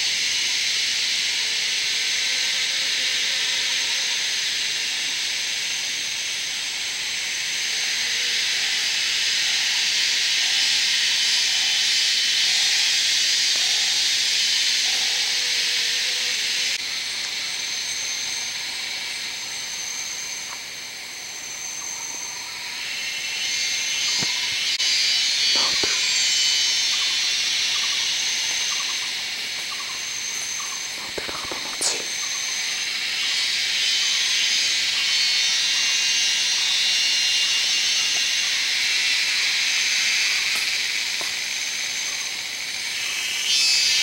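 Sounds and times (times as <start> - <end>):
insect chorus: 0.0 - 44.0
thin high whine: 21.3 - 44.0.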